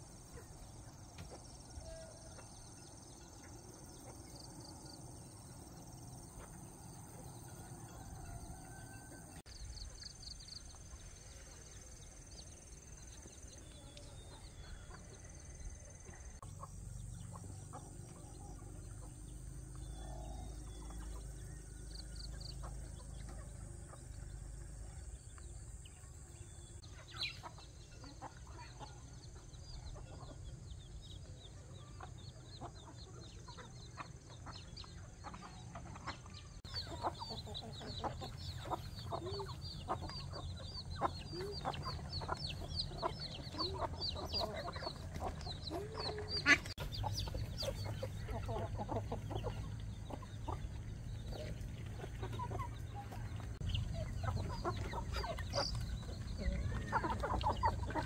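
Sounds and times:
chickens clucking: 0:00.0 - 0:58.0
small birds chirping: 0:00.0 - 0:58.0.

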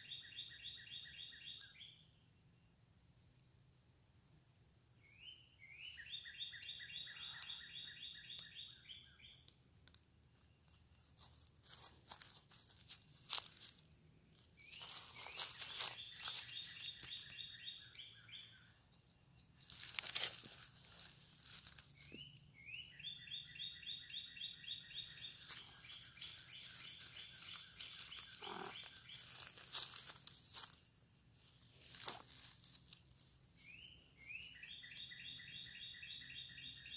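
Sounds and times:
dry leaves crunching and rustling: 0:10.8 - 0:17.8, 0:19.6 - 0:22.3, 0:24.6 - 0:36.9
songbird fast trill: 0:21.0 - 0:30.8, 0:33.6 - 0:36.9.

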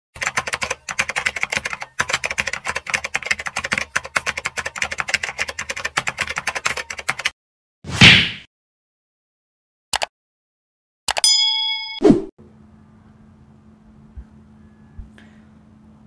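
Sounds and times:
keyboard typing clicks: 0:09.9 - 0:10.1.

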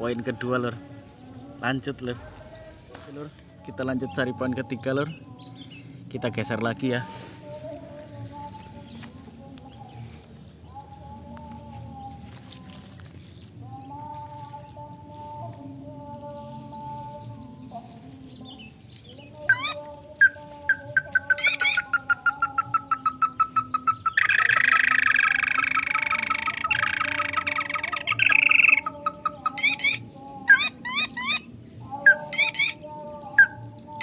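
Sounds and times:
crake calling: 0:19.2 - 0:33.6
harsh rattling bird call: 0:19.5 - 0:31.4.

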